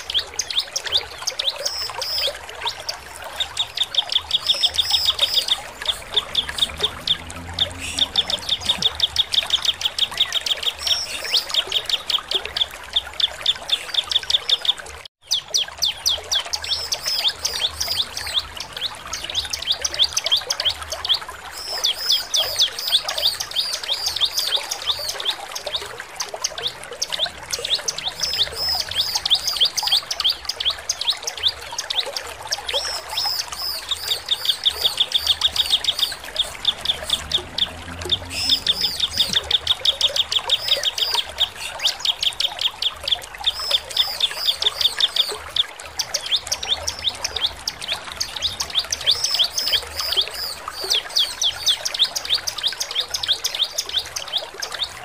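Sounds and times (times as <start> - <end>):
bird singing high chattering notes: 3.4 - 11.7.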